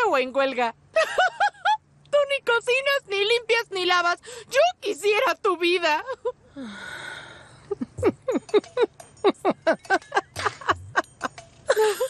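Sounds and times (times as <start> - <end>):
long breathy exhale: 6.6 - 7.6.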